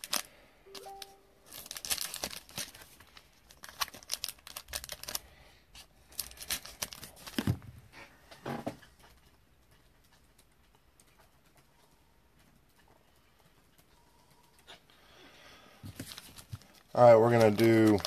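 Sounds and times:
foil packs crinkling: 0:00.0 - 0:07.6, 0:15.8 - 0:18.0.

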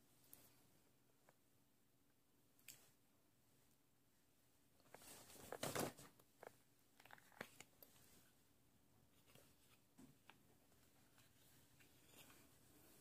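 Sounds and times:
rustling: 0:04.8 - 0:08.4, 0:09.1 - 0:13.0.

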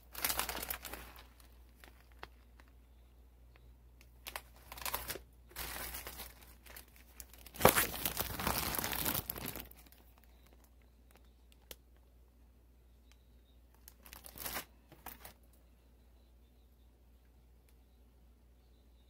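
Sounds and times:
plastic bags crinkling: 0:00.0 - 0:02.9, 0:04.1 - 0:11.8, 0:13.7 - 0:15.4.

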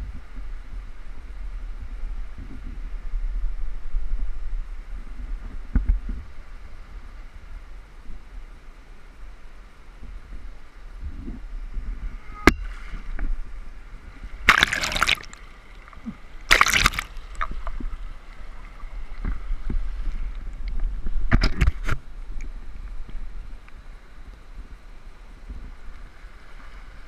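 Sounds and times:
wind and current rumble: 0:00.0 - 0:27.0
river water splashing: 0:12.6 - 0:20.9.

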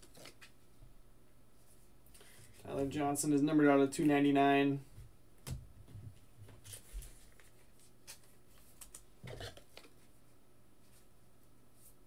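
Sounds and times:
card rustling: 0:00.0 - 0:00.6, 0:06.6 - 0:10.1.

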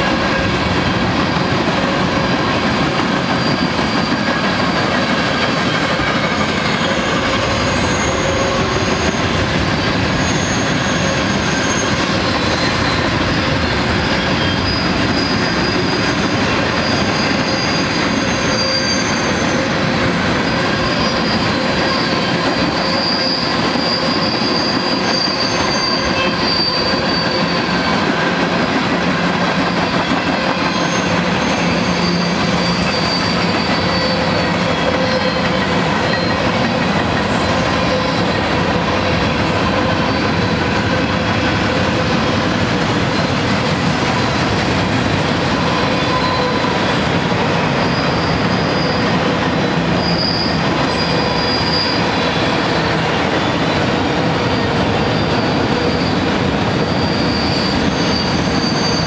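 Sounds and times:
freight train rolling past: 0:00.0 - 0:59.0
wheel squeal: 0:03.2 - 0:38.6, 0:45.6 - 0:59.0.

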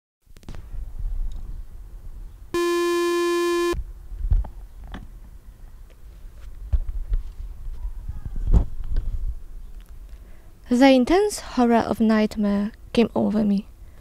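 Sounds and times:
buzzy sync beep: 0:02.6 - 0:03.8.

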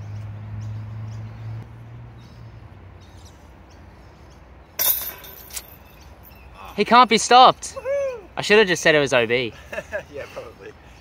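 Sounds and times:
disc hitting metal chains: 0:04.8 - 0:06.0.

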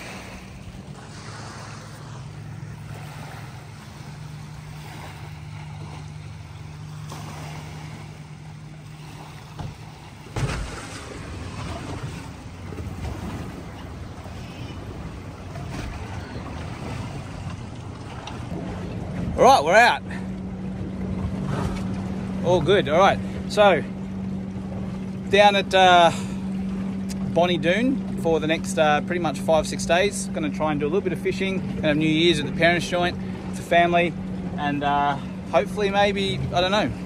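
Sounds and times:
outboard motor running: 0:00.0 - 0:37.0
water: 0:00.0 - 0:37.0
wind: 0:00.0 - 0:37.0
sharp thud: 0:09.6 - 0:11.2.

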